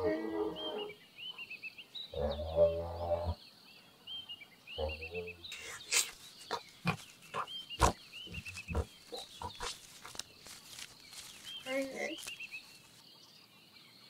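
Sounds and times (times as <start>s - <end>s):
giraffe moaning call: 0.0s - 1.0s, 2.2s - 3.4s
high chirping: 4.8s - 13.0s.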